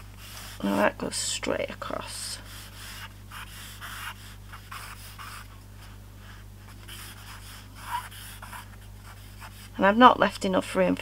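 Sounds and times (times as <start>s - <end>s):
low steady hum: 0.0s - 11.0s
charcoal scratching on paper: 2.5s - 5.5s, 6.7s - 9.8s.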